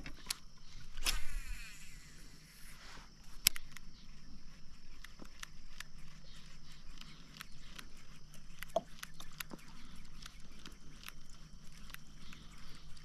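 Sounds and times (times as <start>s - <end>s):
kayak pedal drive clicking: 3.3s - 4.2s, 4.8s - 13.0s.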